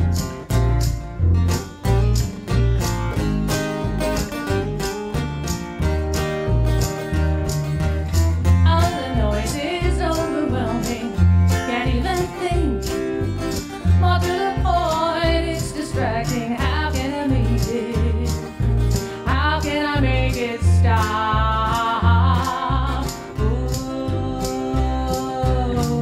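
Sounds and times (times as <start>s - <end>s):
plucked double bass: 0.0s - 26.0s
strummed acoustic guitar: 0.0s - 26.0s
tambourine shaken: 0.0s - 26.0s
person singing: 8.7s - 13.0s, 14.0s - 18.5s, 19.1s - 26.0s.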